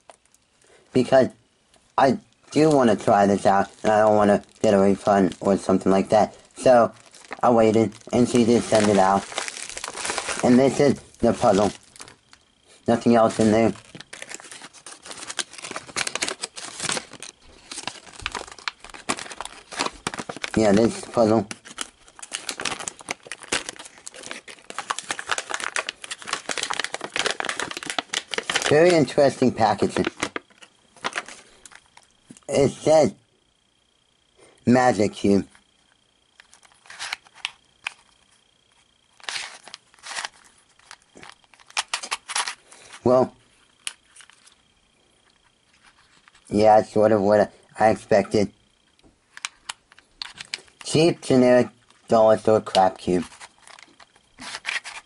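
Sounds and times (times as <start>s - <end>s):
plastic bag crinkling: 2.4s - 32.1s, 36.4s - 38.2s, 39.1s - 43.0s, 49.3s - 51.2s, 51.8s - 55.0s
plastic puzzle cube twisting: 21.5s - 29.0s, 36.4s - 38.0s, 39.2s - 42.6s.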